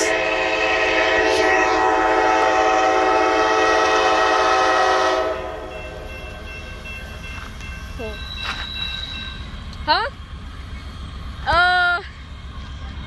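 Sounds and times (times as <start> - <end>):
locomotive air horn chord: 0.0 - 6.1.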